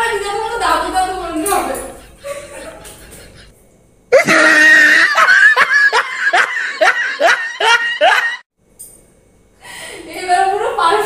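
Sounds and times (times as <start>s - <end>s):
high-pitched giggling: 0.6s - 3.5s.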